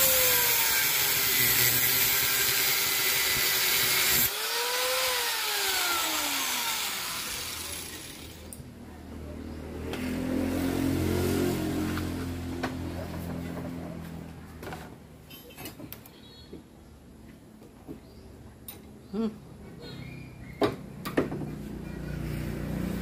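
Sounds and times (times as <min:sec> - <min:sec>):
angle grinder cutting steel: 0:00.0 - 0:08.6
grinder winding down whine: 0:00.0 - 0:08.6.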